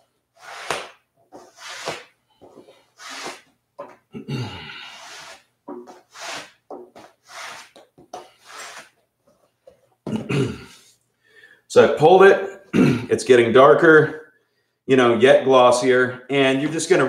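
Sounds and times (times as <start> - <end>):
person grunting: 4.2 - 5.2
leather strap rasping swish: 7.2 - 7.8.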